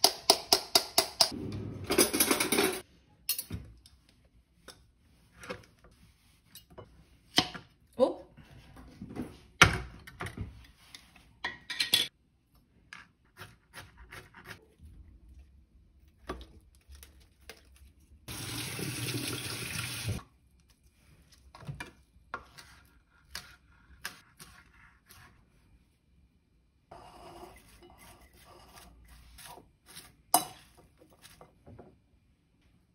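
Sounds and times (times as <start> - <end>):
kitchen tap running: 18.3 - 20.2.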